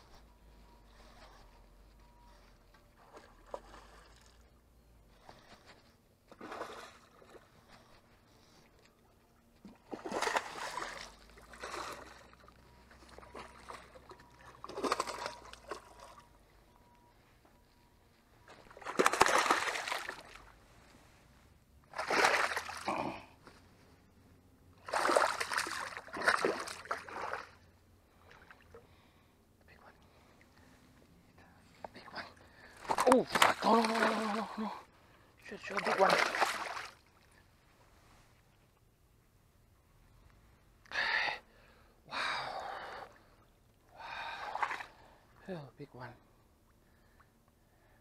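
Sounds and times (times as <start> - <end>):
fish splashing at water surface: 13.1 - 16.2, 18.6 - 20.4, 21.9 - 22.9, 24.8 - 27.6.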